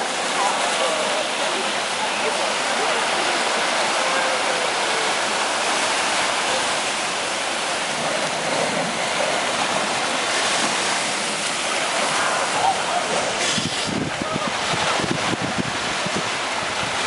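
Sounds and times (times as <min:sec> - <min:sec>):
ocean surf on sandy beach: 0:00.0 - 0:17.0.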